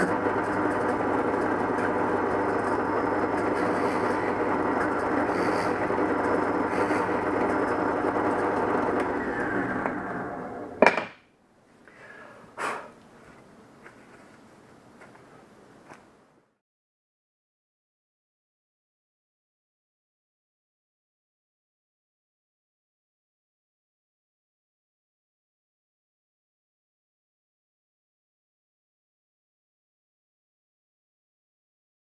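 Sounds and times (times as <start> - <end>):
drill press motor running: 0.0 - 11.0.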